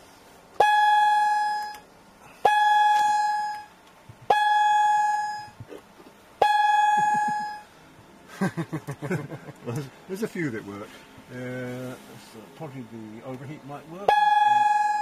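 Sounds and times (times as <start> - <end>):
high warning tone: 0.6 - 5.8, 6.4 - 7.8, 13.9 - 15.0.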